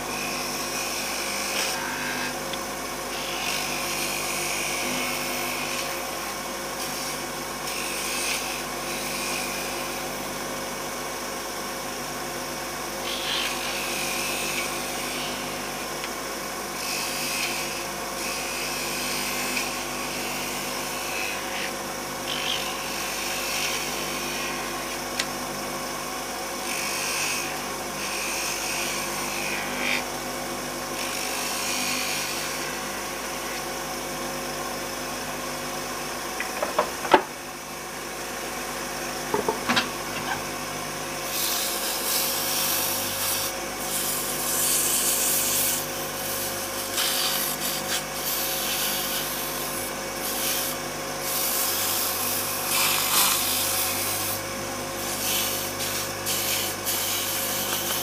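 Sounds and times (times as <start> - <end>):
turning tool cutting wood: 0.0 - 2.5, 3.1 - 10.2, 13.0 - 16.0, 16.7 - 25.3, 26.6 - 30.1, 41.2 - 58.0
wood lathe running: 0.0 - 10.2, 13.0 - 25.3, 26.6 - 30.1, 41.2 - 58.0
sandpaper hissing on spinning wood: 13.0 - 15.6, 41.2 - 58.0.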